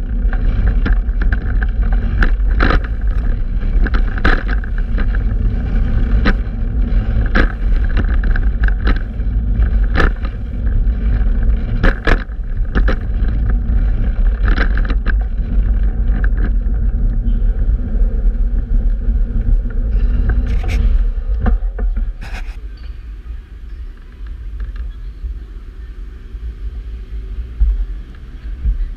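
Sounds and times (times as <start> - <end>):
sharp knocks and rattles: 0.0 - 22.6
bicycle road noise: 0.0 - 28.9
wind buffeting microphone: 0.0 - 28.9.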